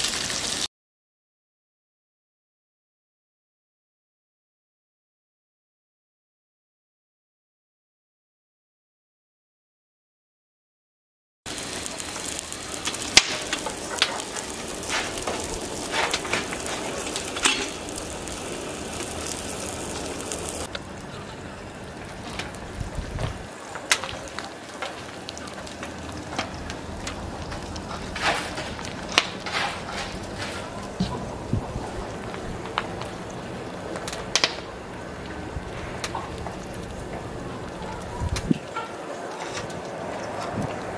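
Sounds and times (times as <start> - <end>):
wood fire crackling: 0.0 - 0.7, 11.5 - 40.9.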